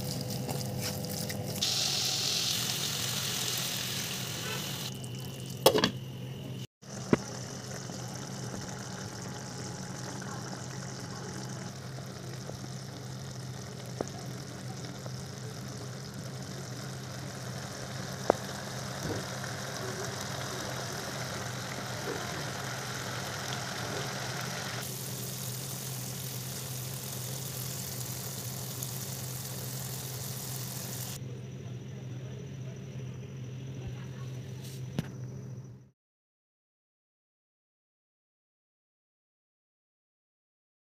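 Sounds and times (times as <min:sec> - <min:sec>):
gravy simmering and bubbling: 0:06.8 - 0:31.2.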